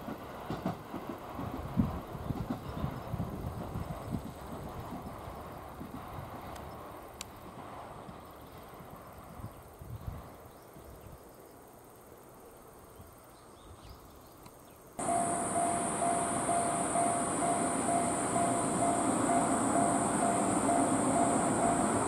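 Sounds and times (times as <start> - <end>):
level crossing warning bell: 15.0 - 22.0.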